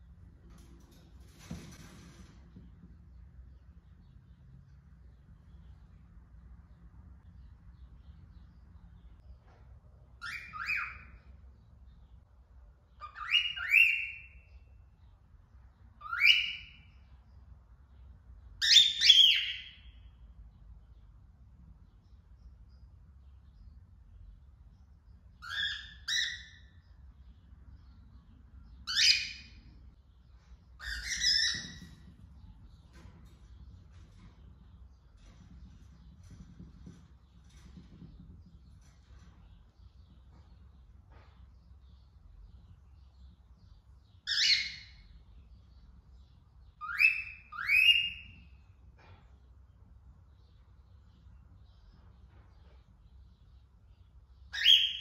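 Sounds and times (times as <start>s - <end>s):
cockatiel whistling calls: 10.2s - 11.2s, 13.0s - 14.3s, 16.0s - 16.8s, 18.6s - 19.8s, 30.8s - 32.0s, 46.8s - 48.4s, 54.5s - 55.0s.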